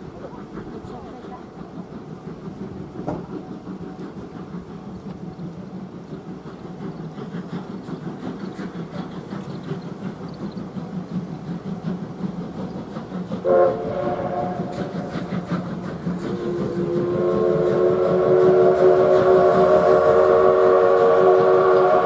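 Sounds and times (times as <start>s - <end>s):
steam locomotive rumble: 0.0s - 22.0s
steam whistle blast: 13.4s - 14.9s, 16.4s - 22.0s.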